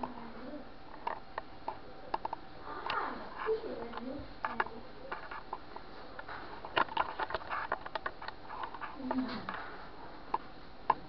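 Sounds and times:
handling clicks and rustles: 3.8 - 9.7.

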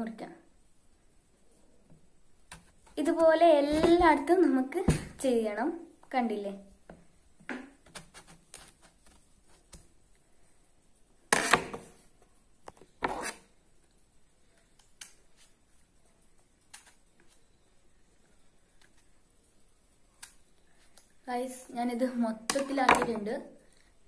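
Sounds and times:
knife cutting mango: 13.0 - 13.5.

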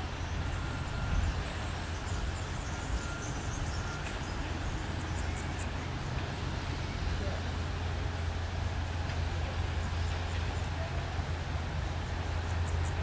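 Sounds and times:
distant locomotive rumble: 0.0 - 13.0.

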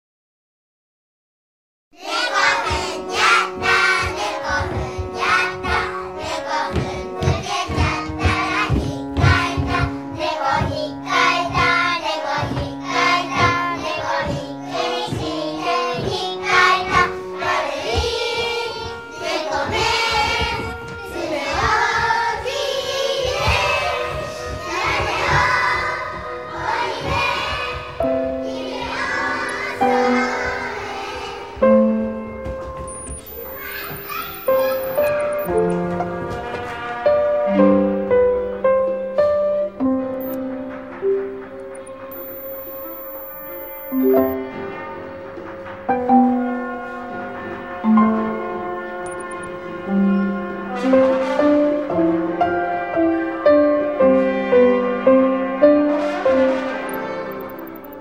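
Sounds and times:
busy percussive pulse: 32.9 - 35.5
voices singing: 32.9 - 35.5.

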